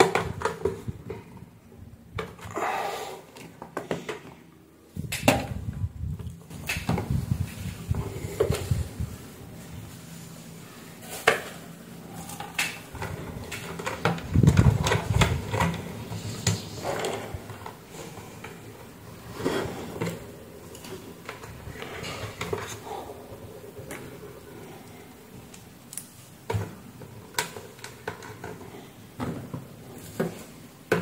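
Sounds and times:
plastic parts clicking and knocking: 0.0 - 1.5, 12.3 - 18.6, 25.5 - 31.0.

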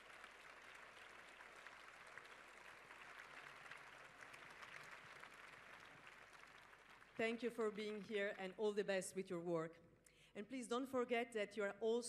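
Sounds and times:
faint audience applause: 0.0 - 7.7.

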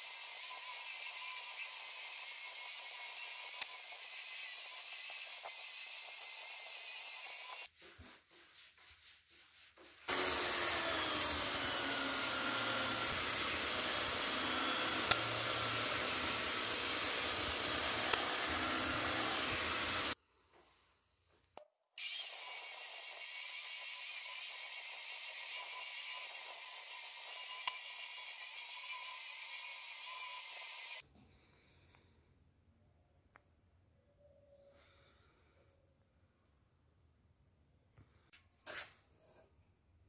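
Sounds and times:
electric belt sander sanding wood: 10.1 - 20.2.

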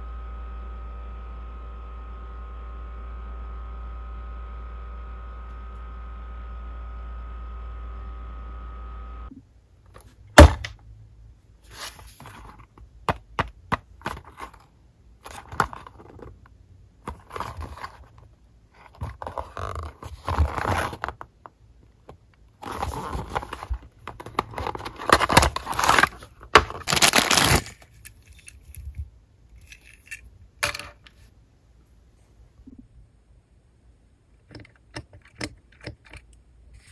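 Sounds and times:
packaging scraping and rustling: 14.0 - 16.4, 17.1 - 21.3, 22.6 - 29.0.

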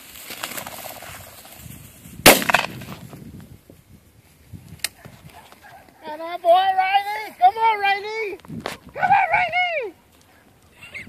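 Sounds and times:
shotgun blast: 2.2 - 2.9
faint sharp crack: 2.2 - 3.1.

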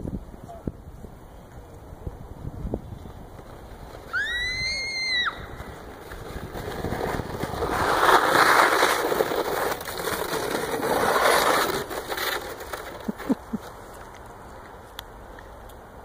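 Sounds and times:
plastic sled scraping over snow: 2.8 - 14.4.

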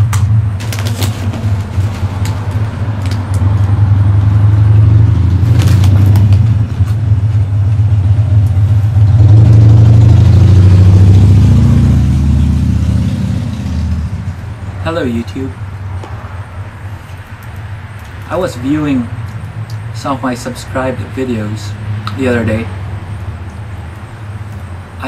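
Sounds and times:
low mechanical drone: 0.0 - 25.0
foil chip bag crinkling: 0.6 - 3.7, 5.4 - 6.4.

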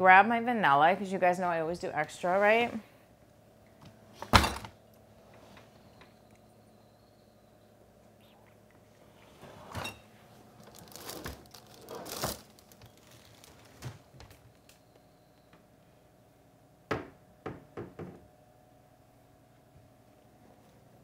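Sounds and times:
rustling: 8.9 - 14.7
knocks in kitchen cupboards: 16.9 - 18.2.

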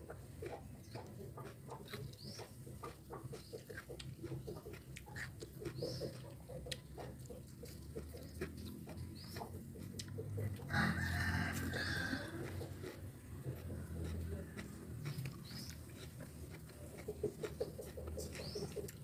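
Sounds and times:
chewing and lip-smacking: 0.0 - 19.0
bird chirps: 5.6 - 6.6, 8.1 - 9.6, 15.1 - 16.1, 17.5 - 19.0.

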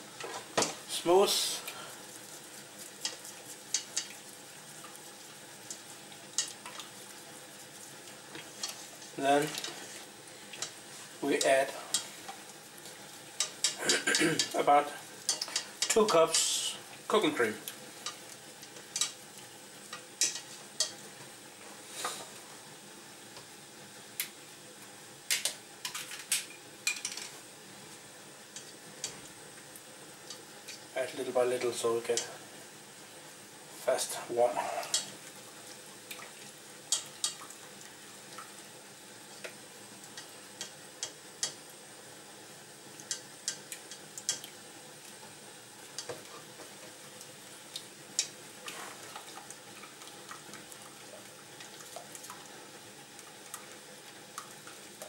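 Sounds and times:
low hiss: 0.0 - 55.0
whisk stirring thick sauce: 1.4 - 10.7
whisk clicking against pot: 3.0 - 4.2.

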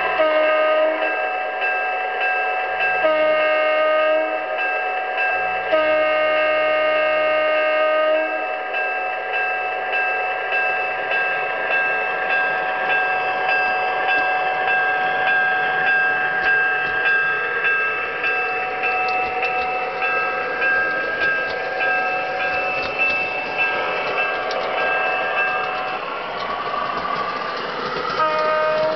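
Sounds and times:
model train diesel engine hum: 0.0 - 28.9
wheels clicking on rails: 12.3 - 28.9.

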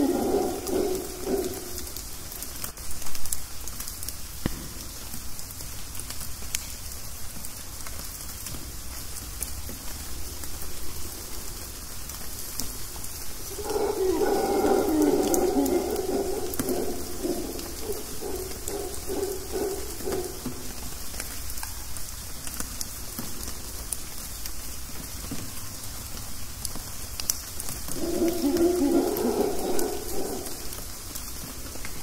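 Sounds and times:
howler monkey howling: 0.0 - 2.5, 13.2 - 21.1, 27.8 - 32.0
rain dripping through trees: 0.0 - 32.0.

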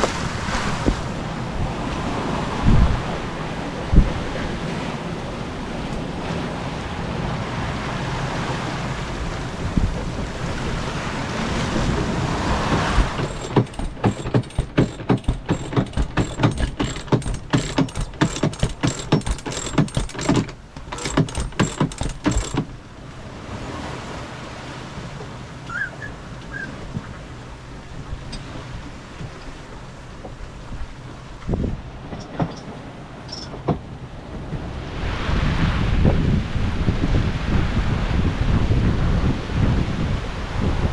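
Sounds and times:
wind and waves rushing: 0.0 - 40.9
winch ratchet clicks: 13.0 - 22.7.

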